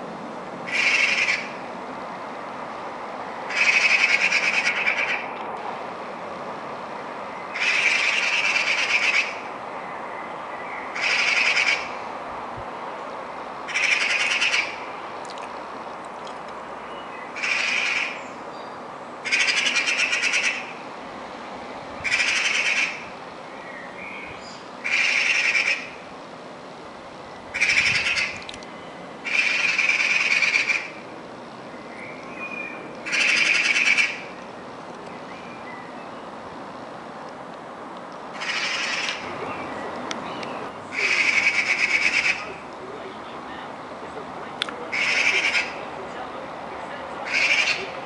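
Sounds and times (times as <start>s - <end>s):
low background noise: 0.0s - 48.0s
magpie chattering: 0.7s - 1.5s, 3.5s - 5.2s, 7.5s - 9.4s, 11.0s - 11.9s, 13.7s - 14.8s, 17.4s - 18.2s, 19.2s - 20.7s, 22.1s - 23.0s, 24.8s - 25.9s, 27.6s - 28.4s, 29.2s - 30.9s, 33.0s - 34.2s, 38.4s - 39.2s, 40.3s - 42.6s, 44.9s - 45.8s, 47.2s - 48.0s.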